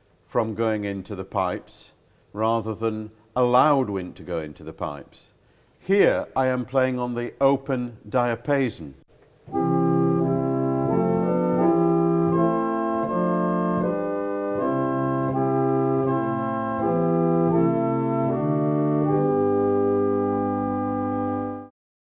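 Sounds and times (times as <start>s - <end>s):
low organ bass note: 9.5s - 21.7s
pipe organ sustained chords: 9.5s - 21.7s.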